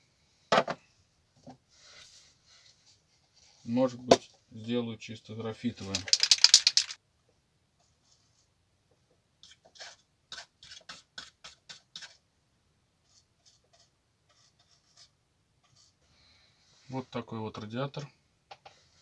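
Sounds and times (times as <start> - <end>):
brush scratchy strokes: 1.7 - 3.8, 9.4 - 12.2, 13.0 - 17.1
aerosol can ball rattling: 5.8 - 7.0.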